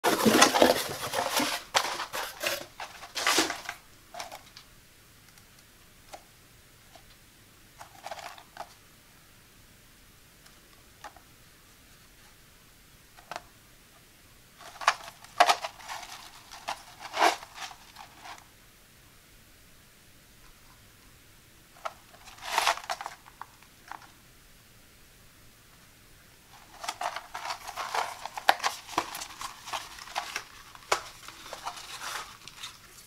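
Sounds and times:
cardboard packaging rustling: 0.0s - 4.6s, 14.6s - 18.4s, 21.8s - 24.1s, 26.5s - 33.0s.

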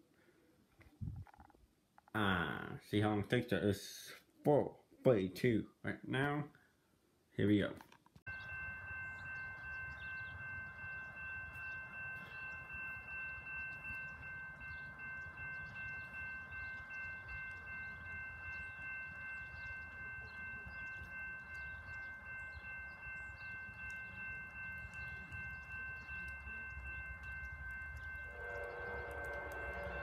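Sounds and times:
low wind rumble: 1.0s - 1.4s, 8.3s - 30.0s
railroad crossing bell ringing: 8.3s - 30.0s.

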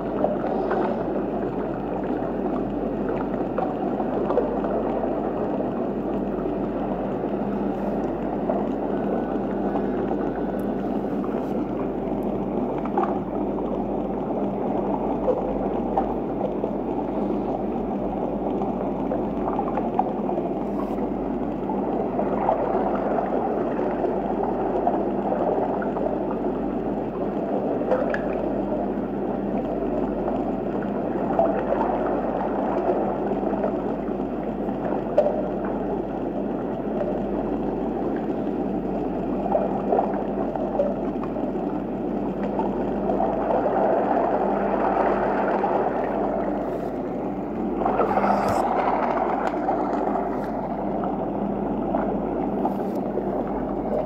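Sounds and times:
aquarium water rushing: 0.0s - 54.0s
faint low hum: 42.0s - 54.0s.

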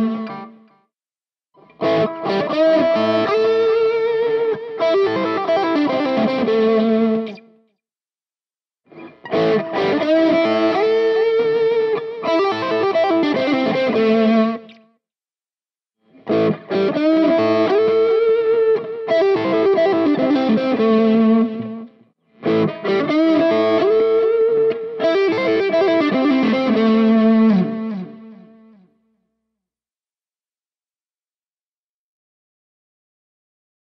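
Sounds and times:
distorted electric guitar lick: 1.6s - 7.5s, 8.9s - 14.8s, 16.2s - 28.4s.

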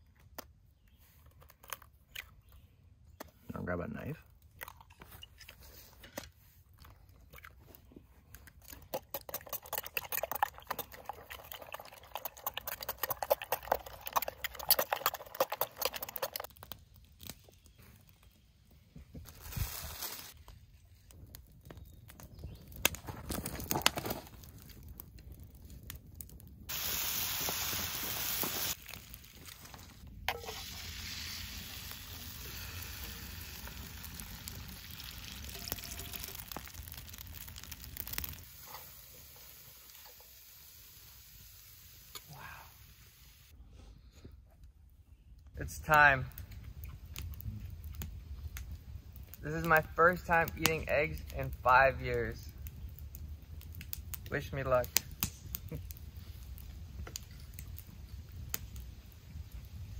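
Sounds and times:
stirring and handling noises: 0.0s - 26.0s
steady hiss: 26.7s - 28.8s, 38.4s - 43.5s
food sizzling in a pan: 26.7s - 28.9s, 30.3s - 43.5s.

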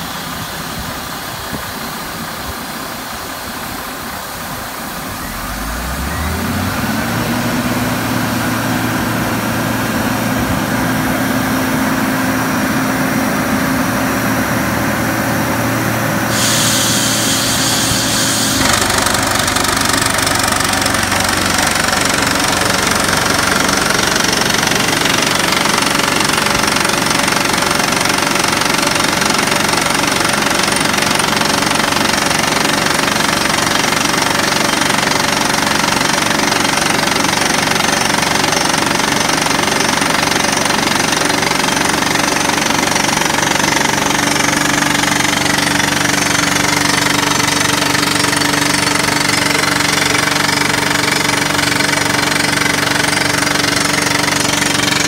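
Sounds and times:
diesel engine running: 3.7s - 55.0s
rock drill hammering: 16.3s - 55.0s.

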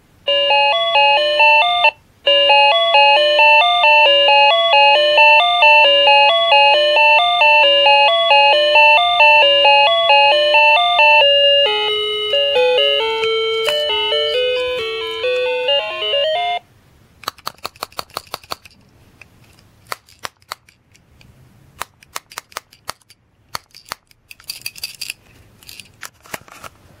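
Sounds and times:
beeping electronic toy tune: 0.3s - 16.6s
plastic castanet clicks: 17.2s - 18.8s, 21.8s - 24.6s.

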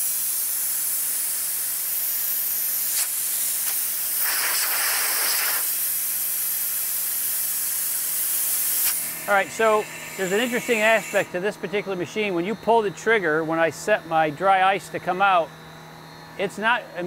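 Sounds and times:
compressed air hissing: 0.0s - 12.0s.

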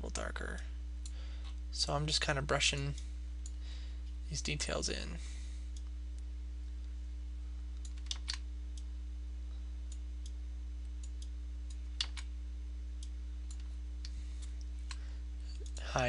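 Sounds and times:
low electrical hum: 0.0s - 16.0s
computer mouse clicks: 7.8s - 8.9s, 12.0s - 12.3s.

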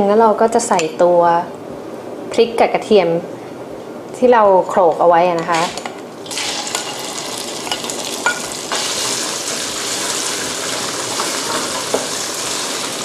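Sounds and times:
paste sizzling in hot oil: 5.5s - 13.0s.

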